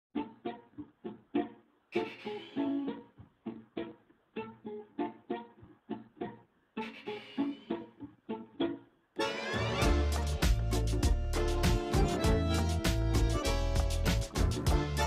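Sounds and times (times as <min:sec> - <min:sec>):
plucked guitar single notes: 0:09.8 - 0:15.0.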